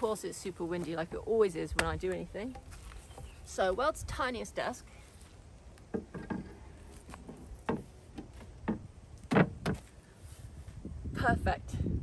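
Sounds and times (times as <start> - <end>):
wind rumble on microphone: 6.3 - 12.0
wooden plank knocking on car: 7.6 - 9.8.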